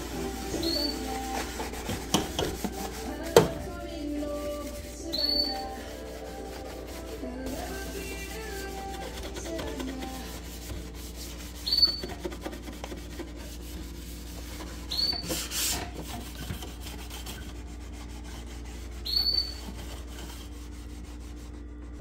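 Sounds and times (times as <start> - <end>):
hand scrubbing and wiping: 0.0 - 22.0
short high squeaks: 5.1 - 5.8, 11.6 - 12.2, 14.9 - 15.4, 19.0 - 19.6.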